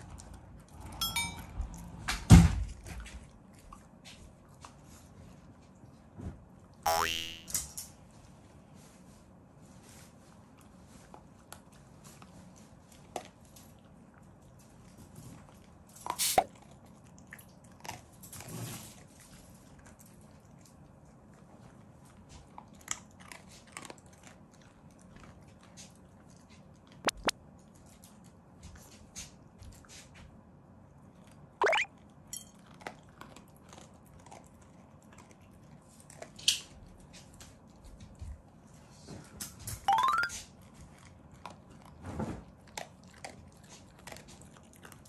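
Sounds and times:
dog chewing crunchy food: 10.6 - 28.2, 32.5 - 37.8, 40.6 - 45.0.

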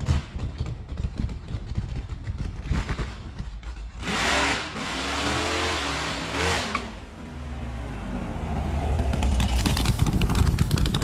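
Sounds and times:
van engine revving: 4.0 - 11.0.

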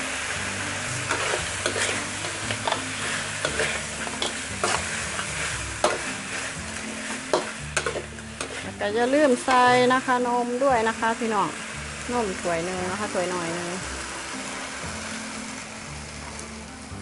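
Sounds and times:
hot oil sizzling: 0.0 - 17.0
metal spatula scraping a wok: 0.3 - 10.2.

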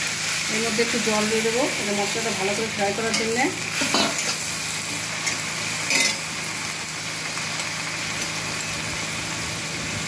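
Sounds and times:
food frying in hot oil: 0.0 - 10.0
metal spatula scrape: 3.1 - 4.5.

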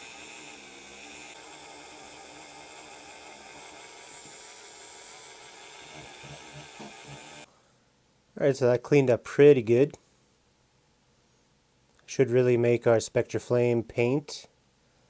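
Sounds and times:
rotary tool whirring: 0.0 - 7.5.

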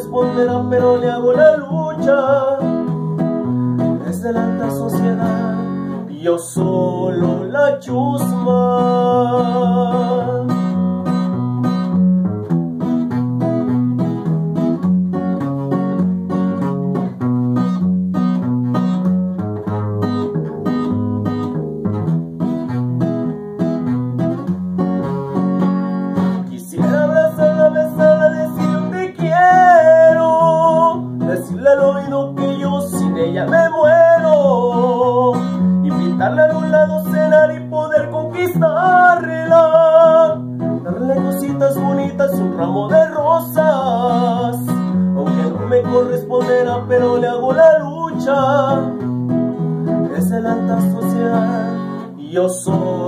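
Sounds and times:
man singing: 0.0 - 10.9, 26.2 - 53.0
acoustic guitar: 0.0 - 53.0.

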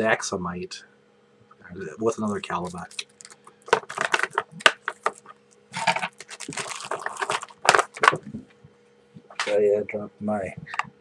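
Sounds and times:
plastic packaging crinkling: 2.3 - 8.4.

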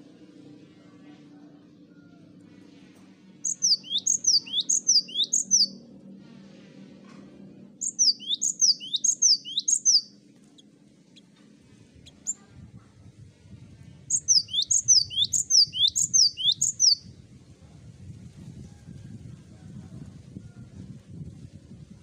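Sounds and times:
tit singing whistled notes: 3.5 - 5.8, 7.8 - 10.1, 14.1 - 17.0.

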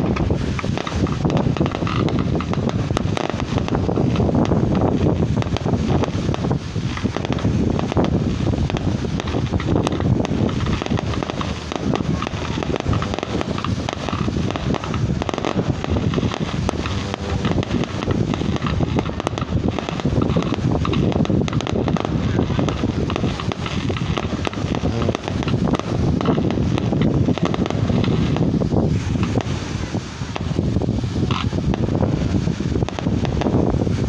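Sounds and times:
distant fireworks crackling: 0.0 - 34.0
wind blowing across microphone: 0.0 - 34.0.

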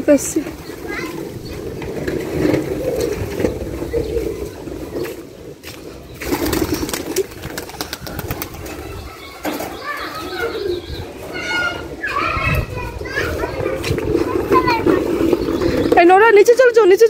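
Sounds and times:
wind rumbling on microphone: 0.0 - 9.2, 10.7 - 16.6
pigeons cooing: 0.0 - 12.6.

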